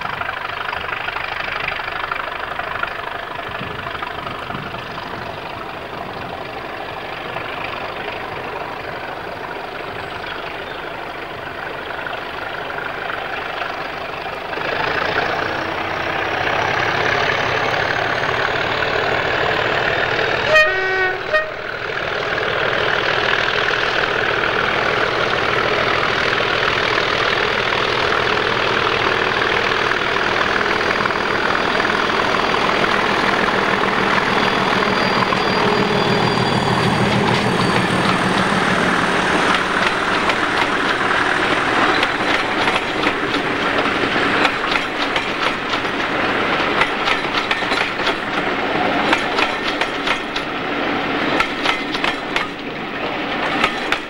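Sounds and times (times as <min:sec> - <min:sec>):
diesel locomotive engine: 0:00.0 - 0:54.0
locomotive horn blasts: 0:20.4 - 0:21.8
high whistle rising in pitch: 0:33.9 - 0:39.2.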